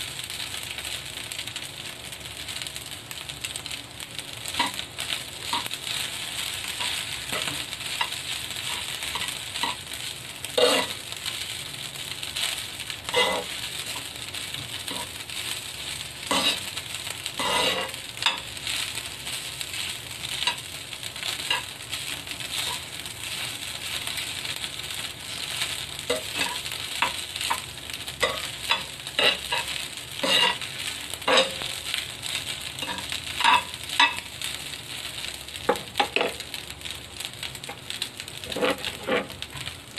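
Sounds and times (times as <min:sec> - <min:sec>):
fried rice sizzling in a pan: 0:00.0 - 0:39.9
metal utensils scraping a pan: 0:04.6 - 0:09.9, 0:10.5 - 0:11.1, 0:13.1 - 0:15.2, 0:16.3 - 0:16.8, 0:17.4 - 0:18.5, 0:21.4 - 0:21.7, 0:22.5 - 0:23.4, 0:25.3 - 0:31.8, 0:32.8 - 0:34.3, 0:38.4 - 0:39.6.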